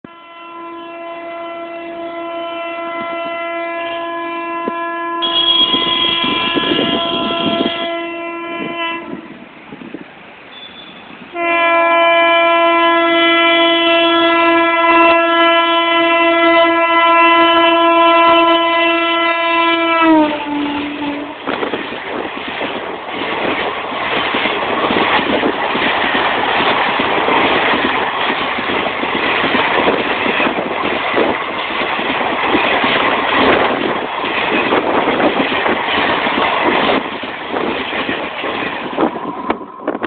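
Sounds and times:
oncoming train noise: 0.0 - 40.0
locomotive air horn blasts: 0.1 - 9.4, 10.5 - 21.5.

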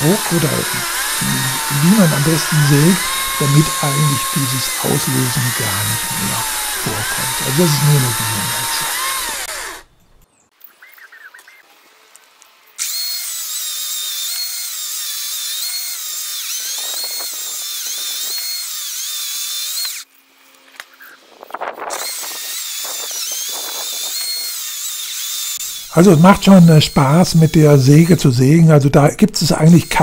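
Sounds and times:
electric chainsaw cutting wood: 0.0 - 10.0, 11.8 - 28.3, 29.4 - 30.0.

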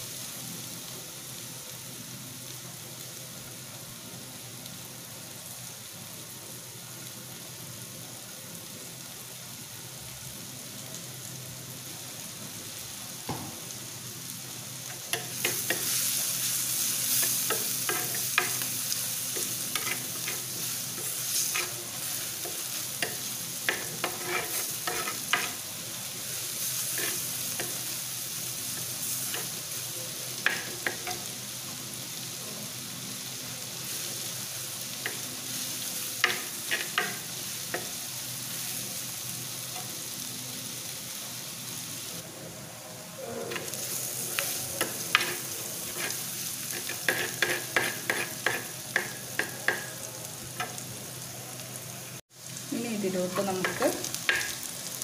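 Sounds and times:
onions sizzling in oil: 0.0 - 55.0
spoon scraping clay pot: 19.8 - 20.4, 23.7 - 25.6, 46.8 - 48.7.

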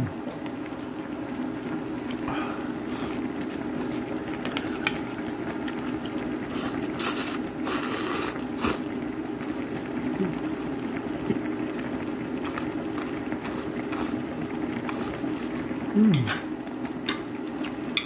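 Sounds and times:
pot boiling and bubbling: 0.0 - 18.0
noodles being slurped: 2.1 - 5.0, 5.6 - 10.8, 12.4 - 16.2.

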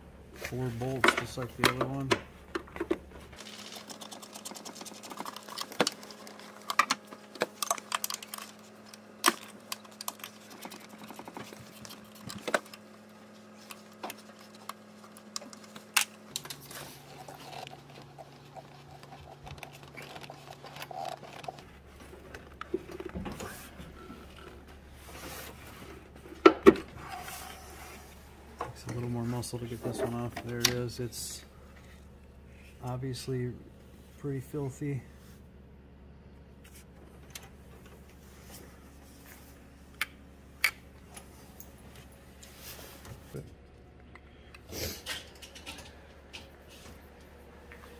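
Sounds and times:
tools tapping on metal and plastic: 1.0 - 3.0.

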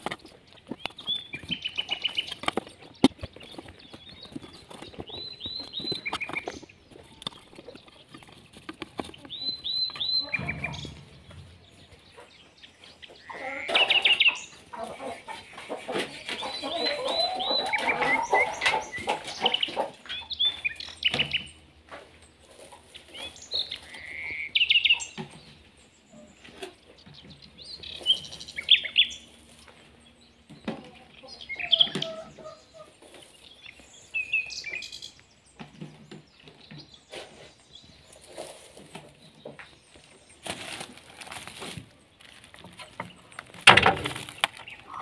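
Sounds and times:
eggs clicking and rustling in straw: 0.0 - 10.5, 39.9 - 45.0
hens clucking: 0.0 - 34.8, 35.6 - 45.0.

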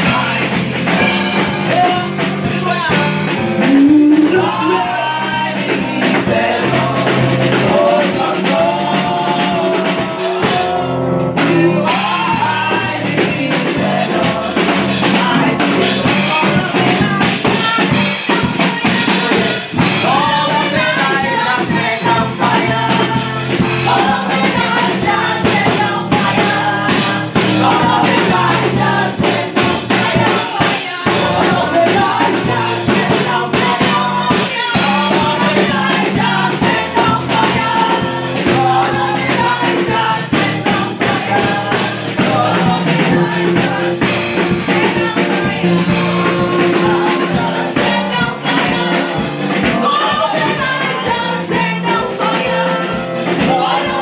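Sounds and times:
group singing gospel: 0.0 - 54.0
keyboard: 0.0 - 54.0
percussion beat: 0.0 - 54.0.

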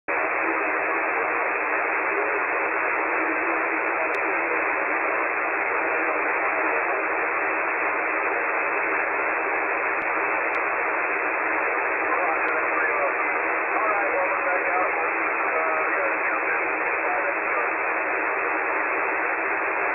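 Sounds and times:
radio static hiss: 0.1 - 19.9
faint clicks: 10.0 - 10.7.

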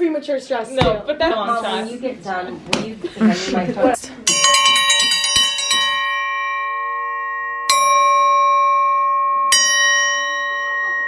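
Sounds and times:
iron dinner bell ringing: 4.2 - 11.0.

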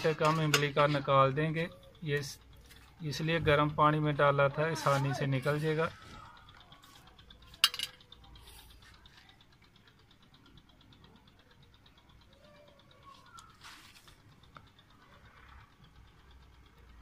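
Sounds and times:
metal kitchenware clink: 7.6 - 8.0
faint handling sounds: 12.9 - 14.8.

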